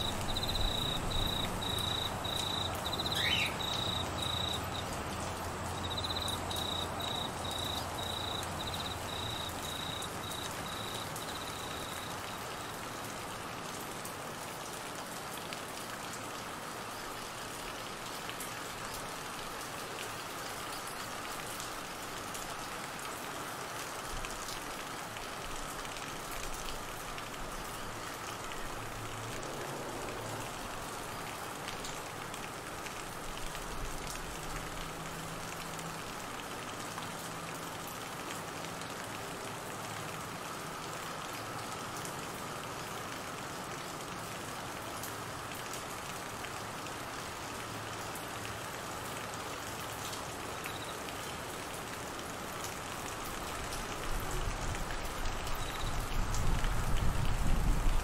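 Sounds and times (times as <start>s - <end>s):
cricket chirping: 0.0s - 12.8s
heavy rain on trees and grass: 0.0s - 58.0s.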